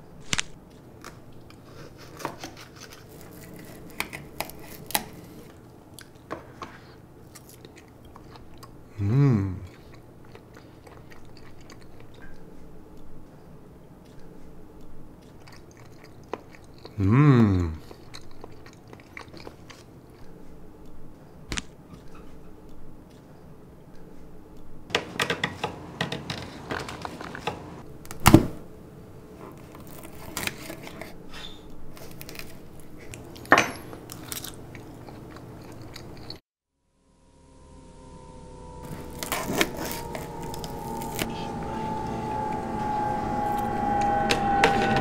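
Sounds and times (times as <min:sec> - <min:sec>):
chewing and crunching food: 0:00.6 - 0:17.0, 0:17.6 - 0:24.7, 0:29.4 - 0:36.4, 0:38.9 - 0:41.5
voice humming: 0:08.9 - 0:09.8, 0:16.9 - 0:18.0, 0:38.0 - 0:45.0.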